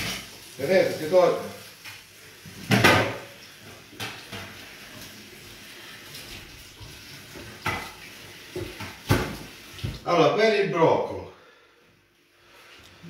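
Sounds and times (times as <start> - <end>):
tap water running into a sink: 0.0 - 10.1
greens rinsed by hand: 0.0 - 10.4
knocks against sink: 2.7 - 3.2.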